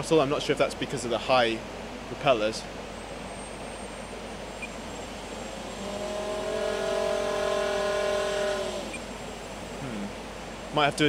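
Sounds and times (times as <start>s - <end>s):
electric motors whining: 5.2s - 9.3s.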